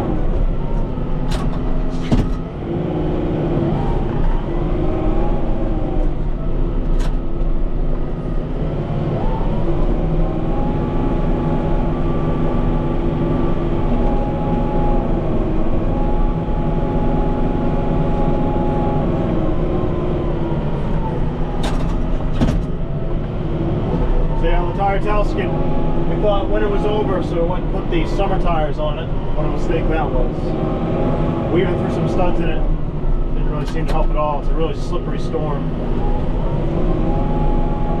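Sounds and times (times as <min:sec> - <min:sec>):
tractor diesel engine running: 0:00.0 - 0:38.0.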